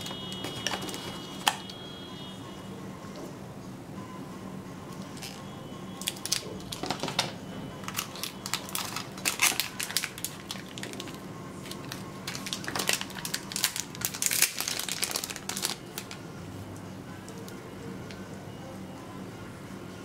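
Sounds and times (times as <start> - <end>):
plastic bag crinkling: 0.0 - 1.6, 7.8 - 16.2.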